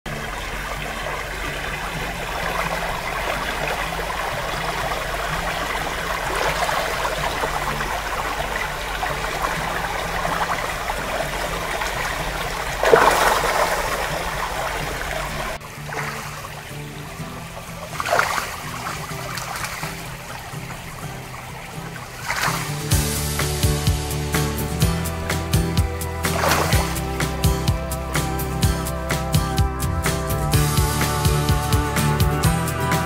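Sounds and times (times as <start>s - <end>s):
creek water running over stones: 0.1s - 33.0s.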